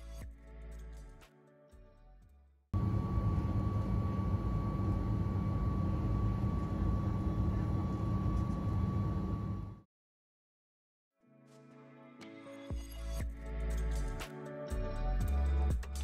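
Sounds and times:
jet engines rumbling: 0:02.8 - 0:09.8
thin engine whine: 0:02.8 - 0:09.8.

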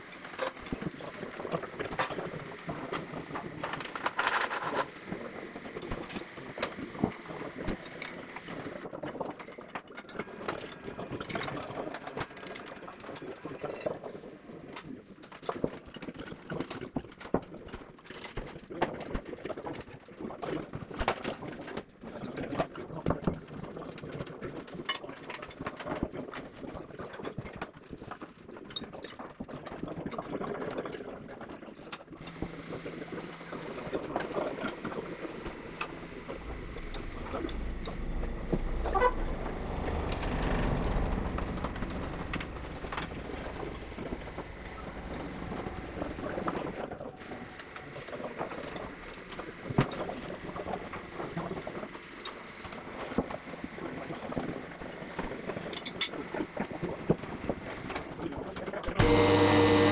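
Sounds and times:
low rumble: 0:32.2 - 0:47.5.

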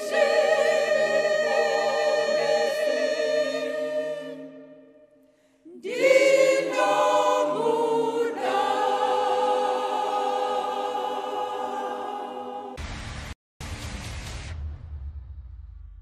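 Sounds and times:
choir singing a hymn: 0:00.0 - 0:12.8.

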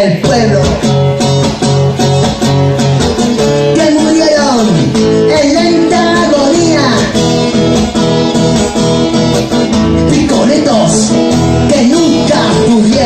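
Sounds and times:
man singing: 0:00.0 - 0:01.0, 0:03.6 - 0:07.6, 0:09.8 - 0:13.0
strummed guitar: 0:00.0 - 0:13.0.

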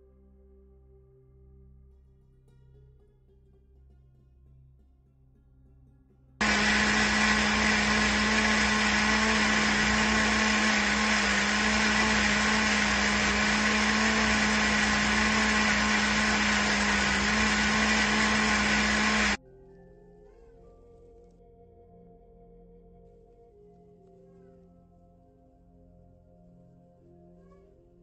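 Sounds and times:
blender motor humming: 0:06.4 - 0:19.4.

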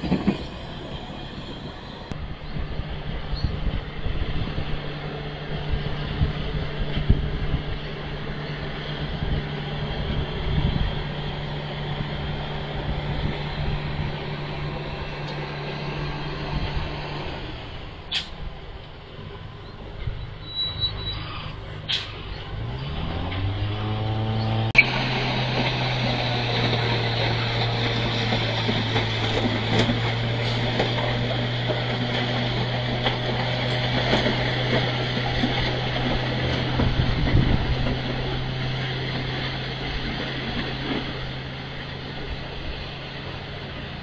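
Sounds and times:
diesel engine revving: 0:00.0 - 0:18.8, 0:19.4 - 0:44.0
sharp click: 0:18.1 - 0:18.4.

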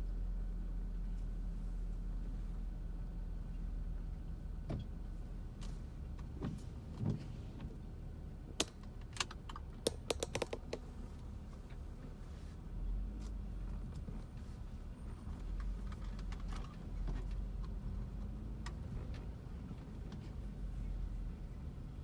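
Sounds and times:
low engine rumble: 0:00.0 - 0:22.0
light clicks and taps: 0:08.6 - 0:10.9.

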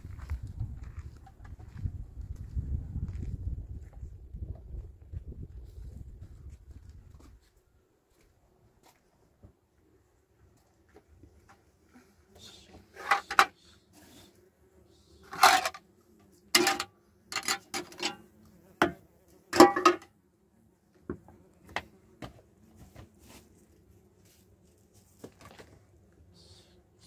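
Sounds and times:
hard objects knocking and clattering: 0:16.6 - 0:18.2, 0:19.6 - 0:20.1.

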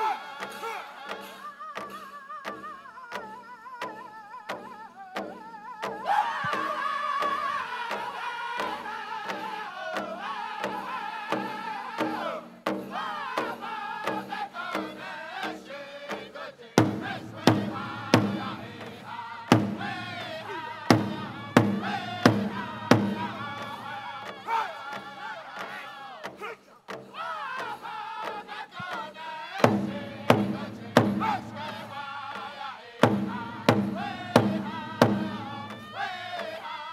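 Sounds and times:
men singing in unison: 0:00.0 - 0:36.9
bass drum beat: 0:16.8 - 0:23.9.

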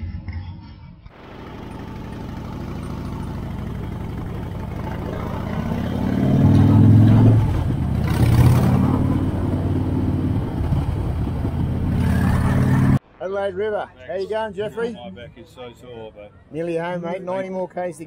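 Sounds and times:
motorcycle engine at speed: 0:01.1 - 0:13.0
wind rush: 0:07.4 - 0:12.9.

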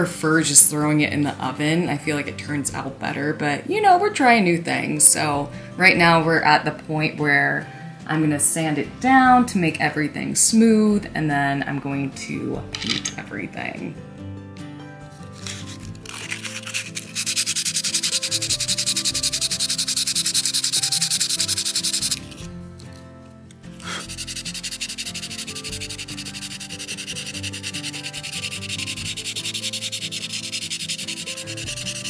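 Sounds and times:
hand sanding clay: 0:15.4 - 0:22.4, 0:23.8 - 0:32.0.

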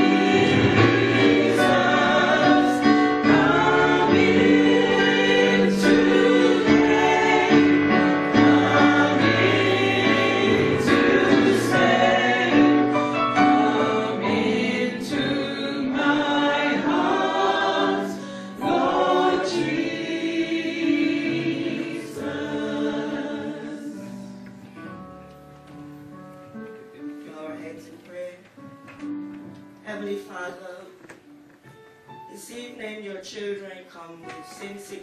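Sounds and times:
vocal trio singing gospel in harmony: 0:00.0 - 0:24.4.

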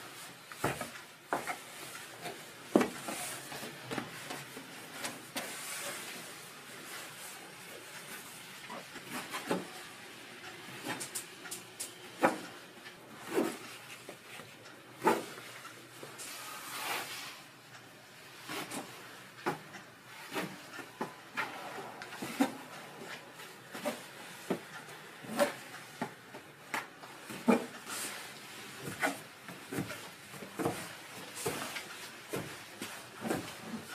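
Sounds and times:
hands brushing dough: 0:16.2 - 0:17.5.

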